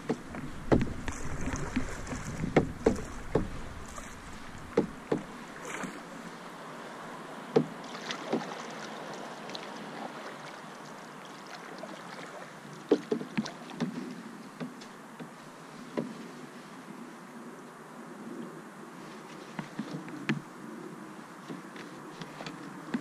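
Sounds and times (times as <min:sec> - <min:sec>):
paddle knocks and splashes: 0:00.0 - 0:06.0, 0:07.6 - 0:08.9, 0:12.9 - 0:14.0
water hiss: 0:00.0 - 0:06.4.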